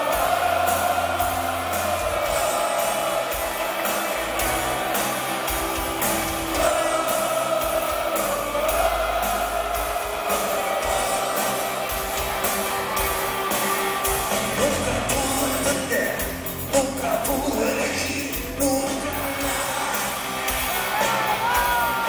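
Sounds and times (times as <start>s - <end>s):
drums: 0.0s - 22.0s
person singing: 6.3s - 22.0s.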